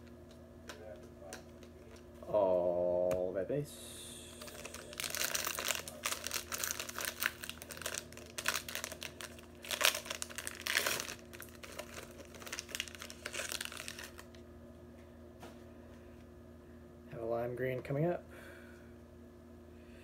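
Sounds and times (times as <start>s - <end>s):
wrapper tearing and crinkling: 4.4s - 14.4s.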